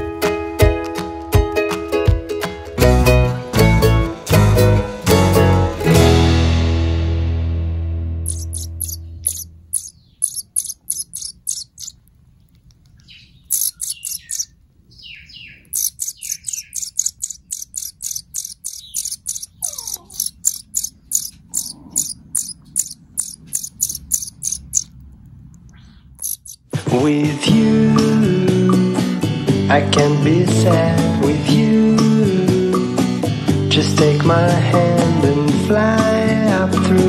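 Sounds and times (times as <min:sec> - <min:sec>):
bird chick begging chirps: 0:08.3 - 0:12.0, 0:13.0 - 0:24.9, 0:25.8 - 0:26.6.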